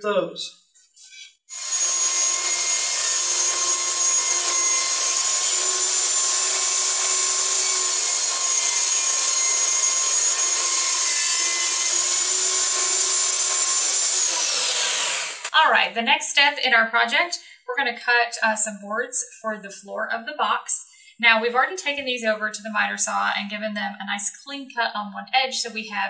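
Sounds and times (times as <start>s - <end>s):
table saw whining: 1.5s - 15.5s.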